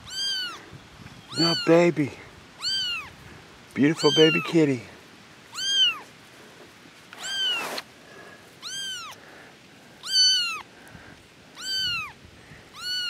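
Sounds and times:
kitten meowing: 0.0 - 0.6, 1.3 - 1.8, 2.6 - 3.1, 4.0 - 4.5, 5.5 - 6.1, 7.2 - 7.8, 8.6 - 9.2, 10.0 - 10.7, 11.5 - 13.0.

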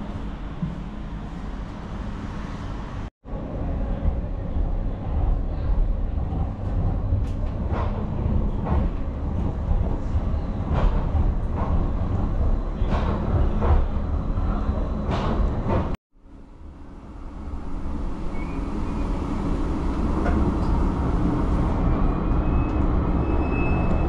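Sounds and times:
tram passing with low rumble: 0.0 - 24.0.

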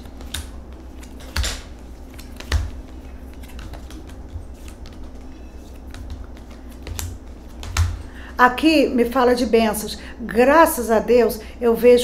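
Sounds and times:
cards clicking and flicking: 0.0 - 8.0.

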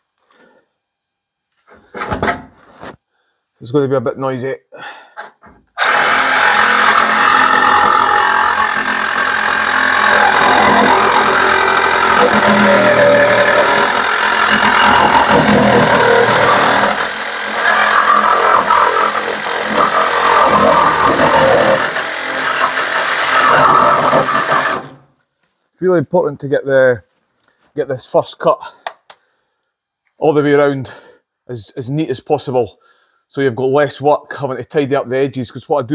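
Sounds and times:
reciprocating saw cutting sheet metal: 5.8 - 25.0.

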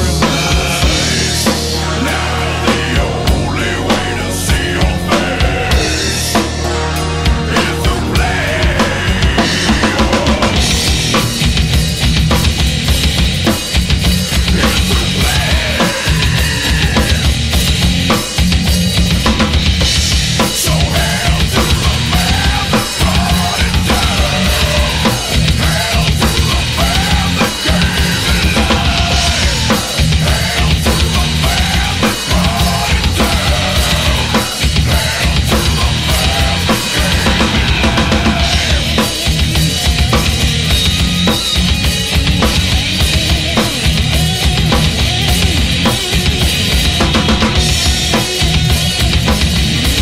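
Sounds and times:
distorted electric guitars: 0.0 - 50.0
live heavy metal band: 0.0 - 50.0.

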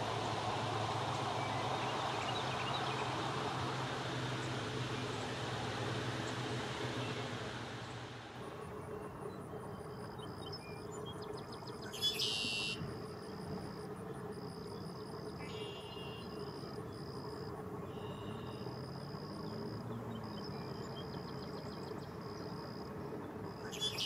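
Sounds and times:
low background rumble: 0.0 - 24.0
insects trilling: 8.4 - 24.0.

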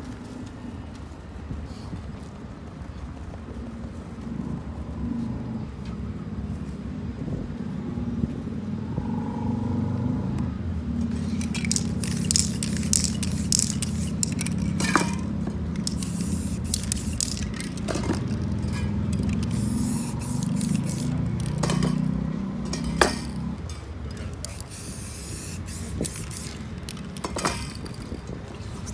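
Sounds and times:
spray can hissing: 11.2 - 22.0, 24.4 - 27.9
sharp clicks: 15.7 - 21.8.

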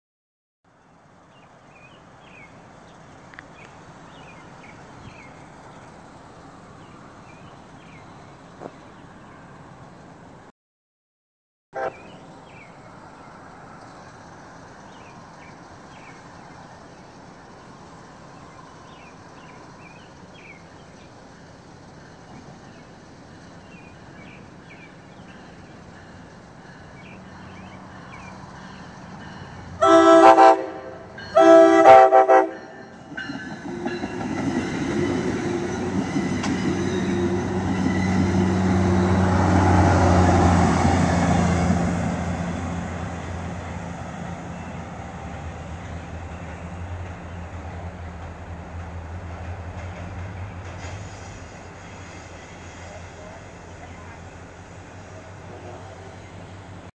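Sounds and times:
rail noise: 0.7 - 10.5, 11.8 - 56.9
train horn blasts: 11.8 - 12.2, 29.8 - 32.9, 55.4 - 56.2
locomotive engine rumble: 11.8 - 56.9.

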